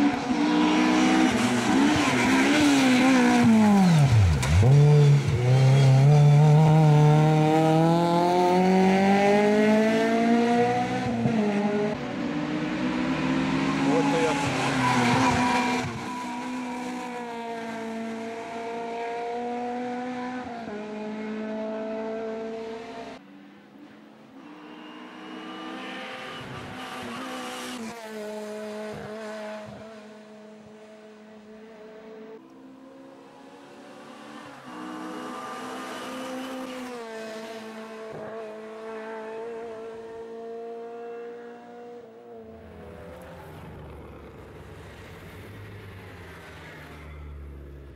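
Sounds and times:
race car engine accelerating: 0.0 - 23.2.

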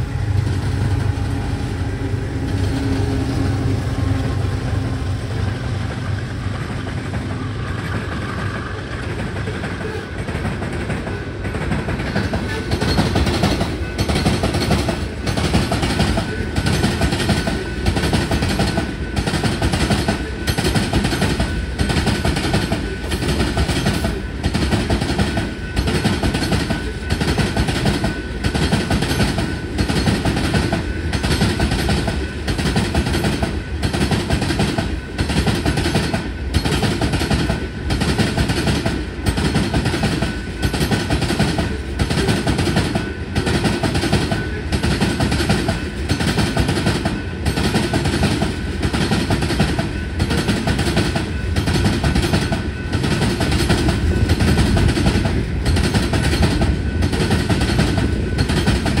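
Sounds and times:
freight train rumbling on rails: 0.0 - 59.0.

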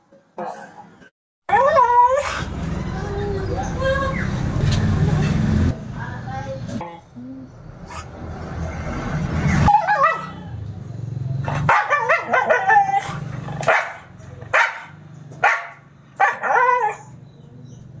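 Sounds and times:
dog howling and yipping: 1.5 - 3.7, 9.6 - 10.6, 11.7 - 13.2, 16.2 - 17.2.

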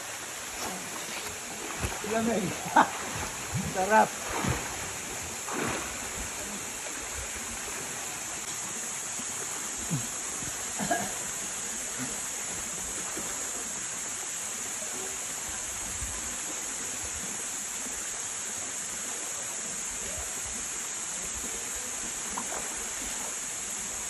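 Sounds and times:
small waterfall rushing: 0.0 - 24.0.

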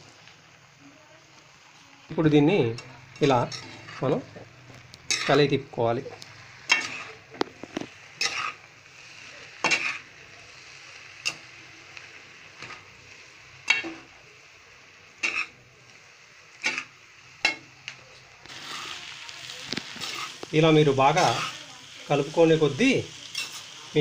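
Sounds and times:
faint pan sizzle: 0.0 - 24.0
metal spoon clanking in a pan: 2.7 - 4.4, 5.0 - 5.5, 6.6 - 8.6, 9.6 - 10.1, 11.2 - 11.6, 12.6 - 12.9, 13.6 - 14.1, 15.2 - 15.6, 16.6 - 19.0, 19.7 - 20.5, 23.2 - 23.7.

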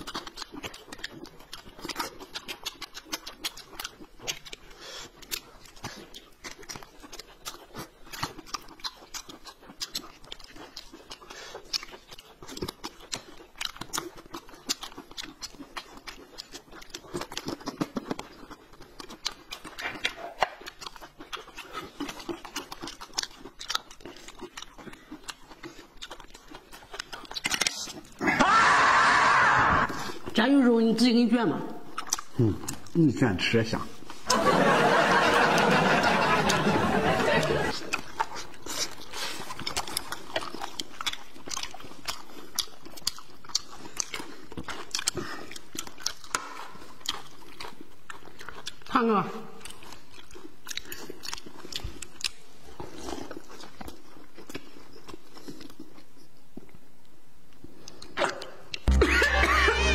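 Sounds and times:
chewing and smacking: 0.0 - 59.9
small clicks of mouths and hands: 27.0 - 28.0.

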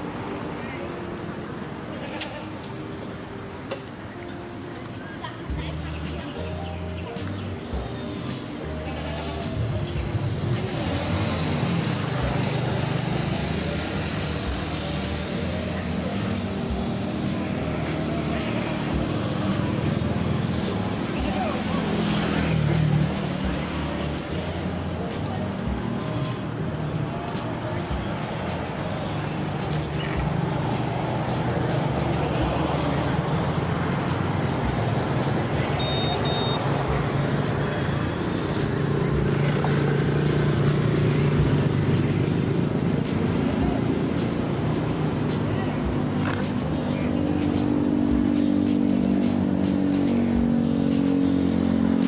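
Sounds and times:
short high chirps: 35.7 - 36.6.

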